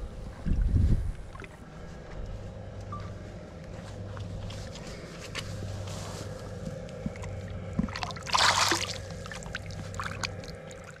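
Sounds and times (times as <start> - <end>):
short water splash: 7.9 - 9.1.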